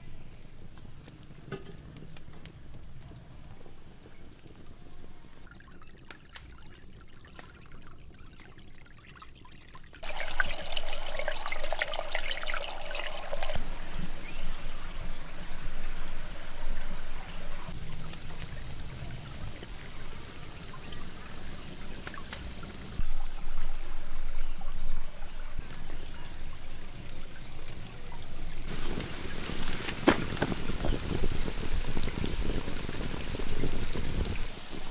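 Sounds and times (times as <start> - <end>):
light crackles and clicks: 0.2 - 8.8, 17.3 - 23.0, 25.6 - 34.9
creek trickling over rocks: 0.6 - 13.9, 15.8 - 34.9.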